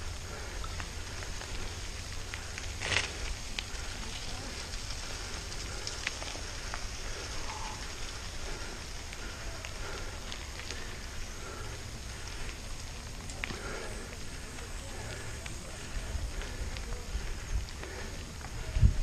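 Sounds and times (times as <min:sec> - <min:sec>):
bike tyres rolling on gravel: 0:00.0 - 0:19.0
stones popping under tyres: 0:00.6 - 0:11.2
wind rumbling on microphone: 0:14.0 - 0:19.0.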